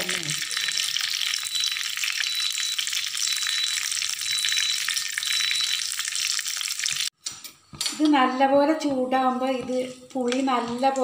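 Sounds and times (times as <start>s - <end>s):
oil sizzling in a wok: 0.0s - 7.2s.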